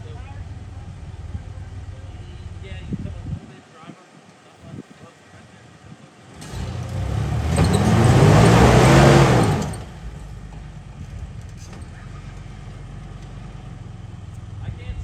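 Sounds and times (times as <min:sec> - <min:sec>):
engine revving hard: 0:06.4 - 0:10.4
tyres spraying rock and dirt: 0:06.4 - 0:10.9.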